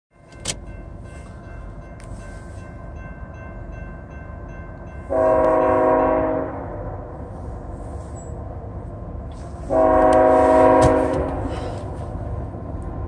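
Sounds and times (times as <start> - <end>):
grade-crossing bell dinging: 0.1 - 6.5
locomotive air horn chord: 5.0 - 6.8, 9.4 - 11.8.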